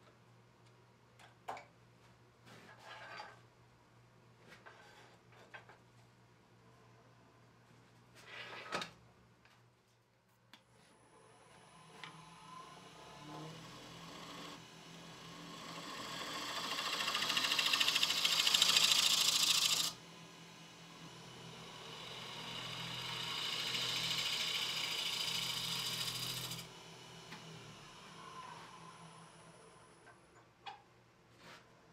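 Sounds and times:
wood lathe humming: 11.6 - 29.9
tool hissing on spinning wood: 13.2 - 29.6.

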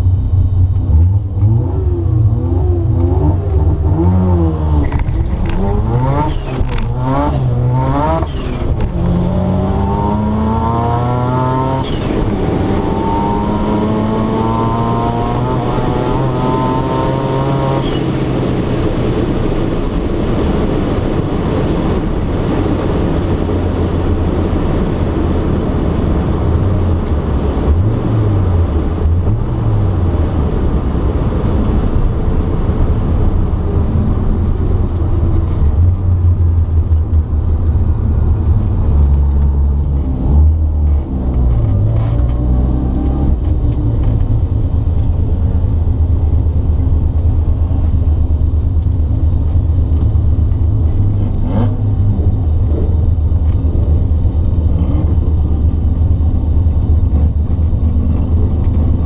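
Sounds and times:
heavy low rumble: 0.0 - 59.0
rotary engine revving: 0.8 - 18.1, 49.3 - 59.0.

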